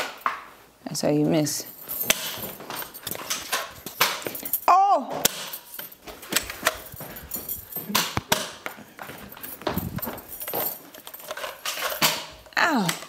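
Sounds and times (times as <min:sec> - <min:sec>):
players scuffling: 0:01.3 - 0:04.7, 0:05.6 - 0:12.4.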